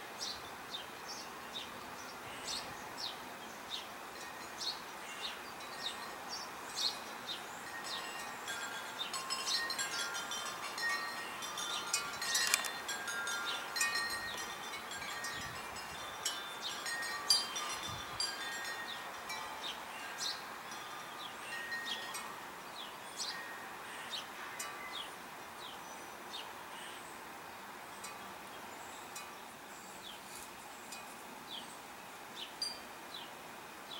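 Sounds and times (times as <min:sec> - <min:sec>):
small birds chirping: 0:00.1 - 0:33.9
wind chimes ringing: 0:07.0 - 0:25.1.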